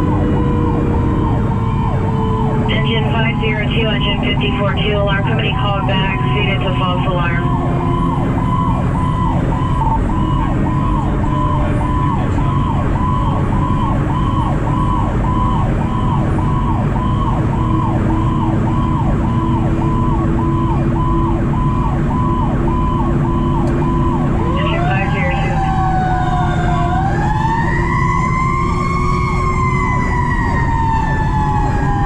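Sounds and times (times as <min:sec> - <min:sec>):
fire engine siren wailing: 0:00.0 - 0:32.0
truck engine running: 0:00.0 - 0:32.0.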